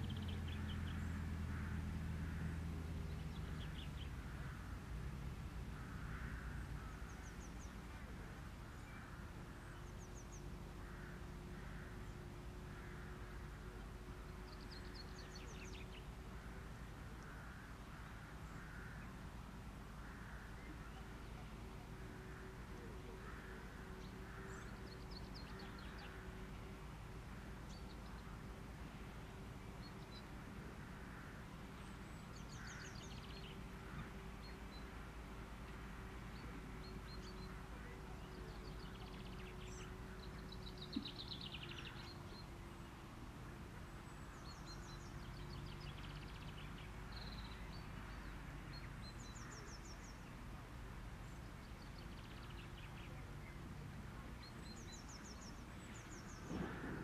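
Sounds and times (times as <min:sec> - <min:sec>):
distant birds calling: 0:00.0 - 0:57.0
faint steady hum: 0:00.0 - 0:57.0
low rumble: 0:56.3 - 0:57.0.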